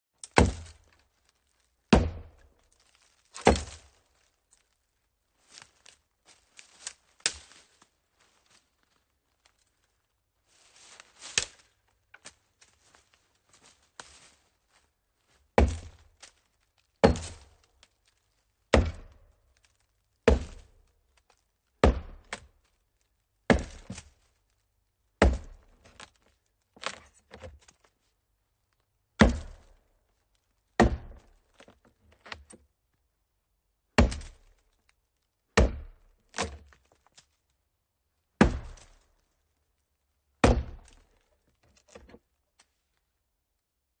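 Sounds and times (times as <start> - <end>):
chopping hollow tree trunk: 0.2 - 1.0, 1.9 - 2.6, 3.4 - 3.9, 15.5 - 16.4, 17.0 - 17.9, 18.7 - 19.4, 20.2 - 20.9, 21.8 - 22.6, 23.5 - 24.2, 25.2 - 27.7, 29.2 - 29.8, 30.8 - 32.6, 33.9 - 34.6, 35.5 - 37.0, 38.4 - 39.1, 40.4 - 42.2.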